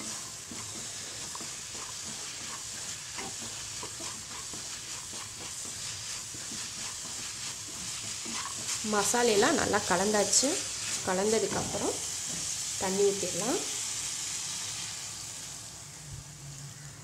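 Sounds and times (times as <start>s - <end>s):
wooden spatula scraping a pan: 0.0s - 12.8s
vegetables sizzling in a pan: 0.0s - 17.0s.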